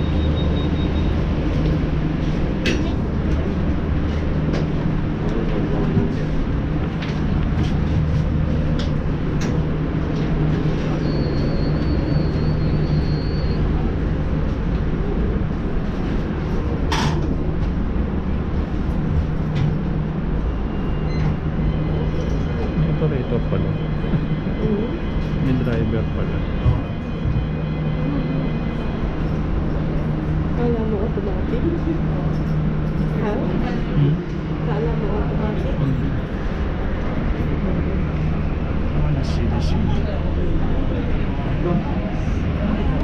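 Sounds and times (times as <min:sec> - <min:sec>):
low machinery hum: 0:00.0 - 0:43.0
indistinct chatter: 0:20.6 - 0:43.0.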